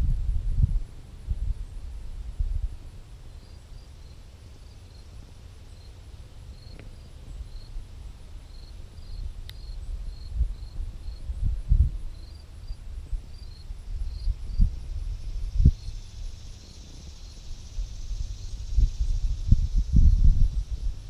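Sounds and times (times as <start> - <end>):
wind buffeting microphone: 0.0 - 2.8, 9.0 - 21.0.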